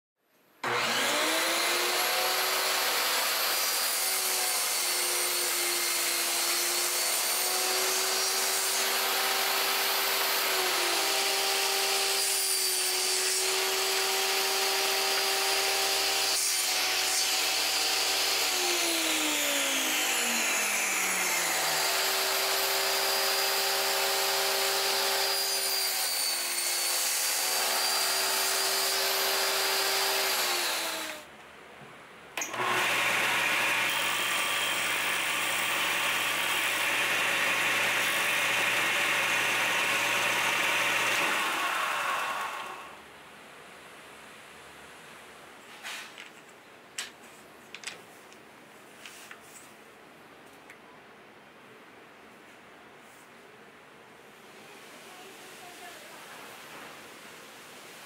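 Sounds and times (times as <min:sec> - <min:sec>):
table saw cutting plywood: 0:00.6 - 0:31.3, 0:32.4 - 0:43.0.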